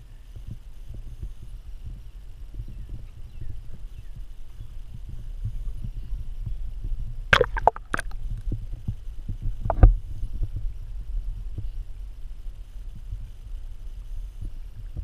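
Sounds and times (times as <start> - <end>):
sharp knock with gurgle: 7.4 - 8.2
underwater splashing and bubbling: 7.4 - 8.2.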